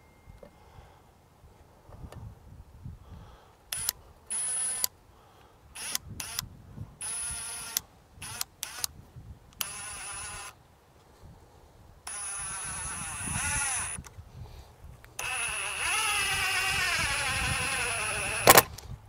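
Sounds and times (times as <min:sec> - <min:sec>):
impact driver whining: 0:15.2 - 0:18.7.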